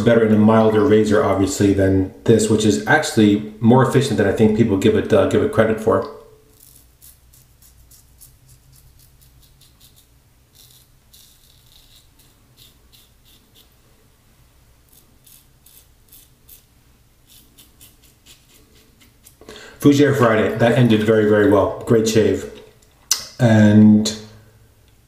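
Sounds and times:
razor scraping stubble: 6.5 - 13.8, 14.9 - 19.4.

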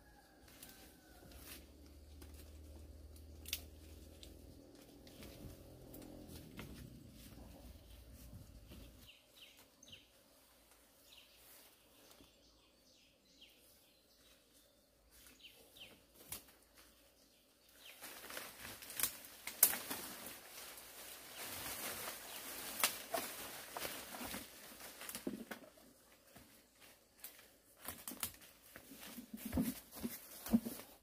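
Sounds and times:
rustling with crackles and clicks: 0.5 - 9.7, 17.8 - 31.0.

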